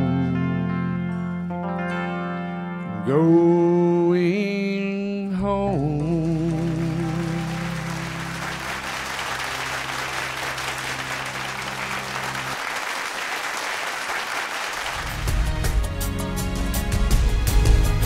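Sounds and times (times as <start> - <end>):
audience applause: 6.2 - 15.8
sustained accompaniment chord: 6.8 - 12.6.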